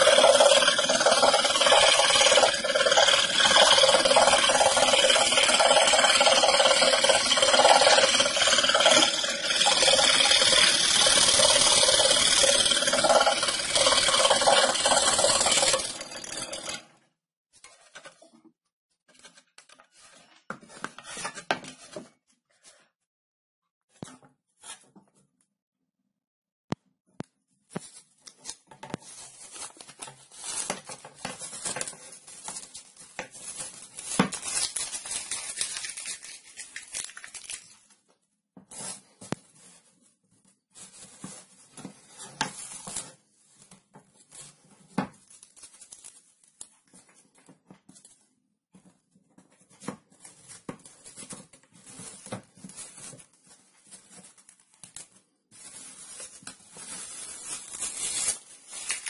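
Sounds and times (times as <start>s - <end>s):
paper ripping and rustling: 28.3s - 37.9s, 51.2s - 59.0s.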